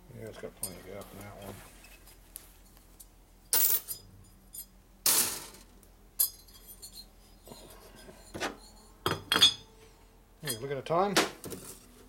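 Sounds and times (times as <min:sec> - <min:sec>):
piston ring clinking on metal: 0:03.0 - 0:05.2, 0:06.2 - 0:09.7, 0:10.4 - 0:10.7.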